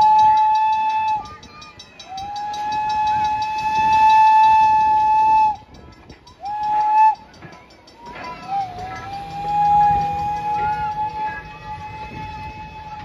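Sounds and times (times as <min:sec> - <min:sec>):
train whistle blasts: 0:00.0 - 0:01.3, 0:02.0 - 0:05.7, 0:06.4 - 0:07.2, 0:08.4 - 0:13.0.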